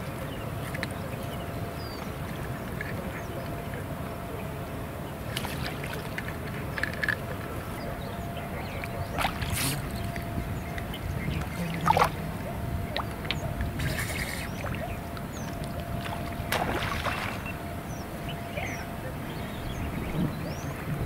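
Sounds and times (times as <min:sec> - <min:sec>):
lake water sloshing and lapping: 0:05.2 - 0:07.8, 0:08.5 - 0:19.2
short water splashes: 0:11.4 - 0:12.3, 0:15.8 - 0:17.6.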